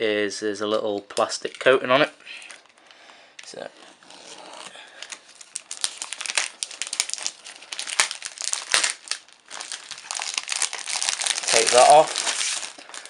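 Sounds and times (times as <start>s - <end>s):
plastic wrapping crinkling: 3.5s - 13.0s.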